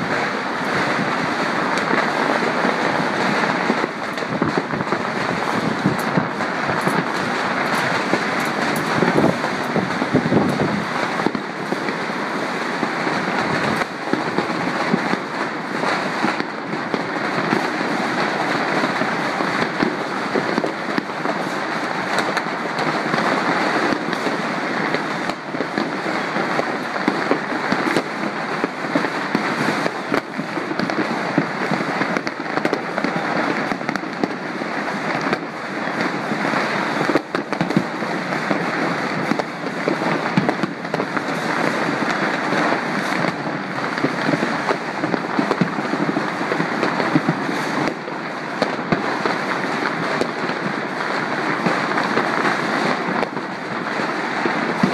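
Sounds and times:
distant fireworks crackling: 0:00.0 - 0:54.9
sharp firework bangs: 0:00.0 - 0:54.9.

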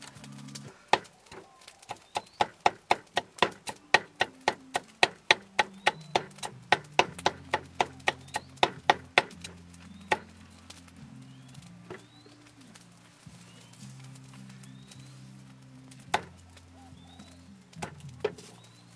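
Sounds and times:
knife chopping root: 0:00.9 - 0:09.4, 0:16.1 - 0:16.3.

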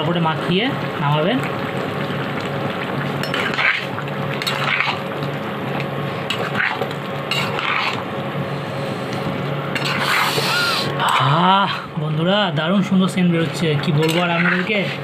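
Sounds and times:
metal spatula scraping pan: 0:07.3 - 0:08.0, 0:09.8 - 0:10.6, 0:13.5 - 0:15.0.

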